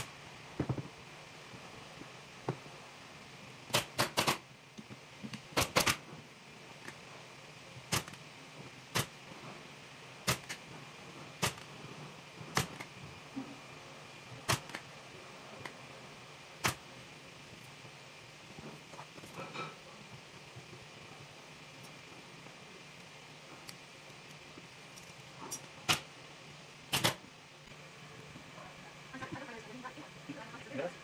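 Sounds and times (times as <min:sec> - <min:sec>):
staple gun firing: 0:03.7 - 0:04.4, 0:05.6 - 0:06.0, 0:14.5 - 0:14.8, 0:26.9 - 0:27.2.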